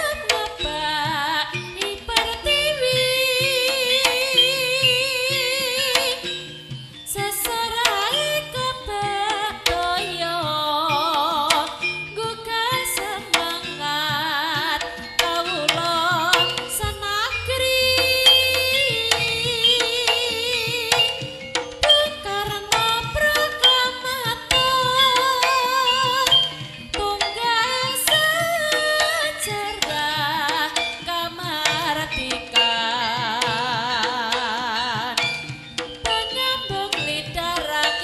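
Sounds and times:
wavering melody with vibrato: 0.0 - 38.0
sharp drum strokes: 14.7 - 32.3.

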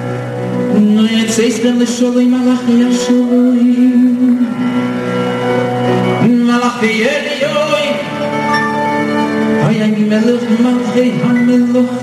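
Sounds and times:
live band accompaniment: 0.0 - 12.0
man singing into a microphone: 0.6 - 5.1, 6.0 - 8.4, 9.6 - 12.0.

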